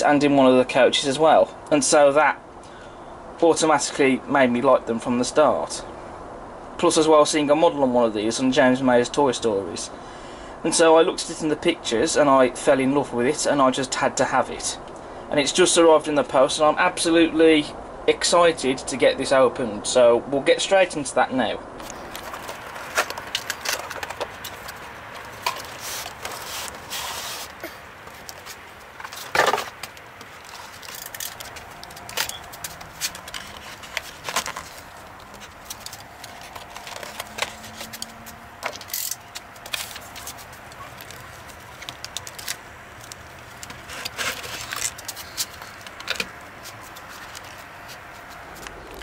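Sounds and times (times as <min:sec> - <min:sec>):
plastic bags crinkling: 0:21.9 - 0:48.3.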